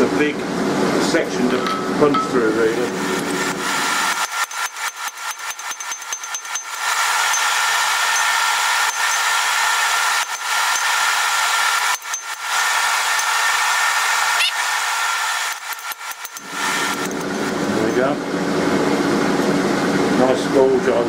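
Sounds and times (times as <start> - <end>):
rapid hammer blows on steel: 1.6 - 17.5
loud steady rushing noise: 6.8 - 20.7.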